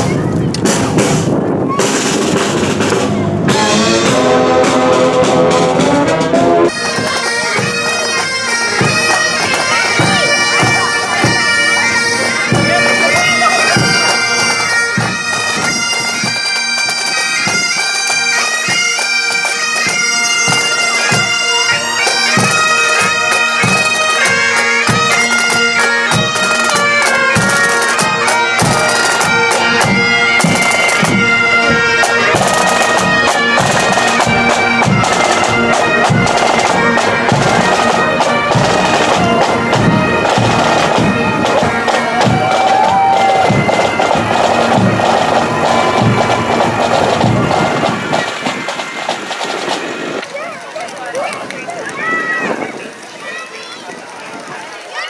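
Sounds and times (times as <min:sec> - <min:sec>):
marching snare and bass drums: 0:00.0 - 0:50.7
saxophones playing: 0:02.9 - 0:16.7, 0:43.2 - 0:49.0
bagpipes playing a tune: 0:03.4 - 0:53.0.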